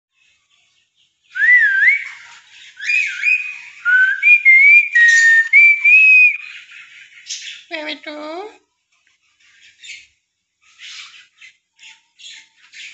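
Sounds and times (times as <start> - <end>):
person whistling: 1.4 - 2.1, 3.9 - 6.4.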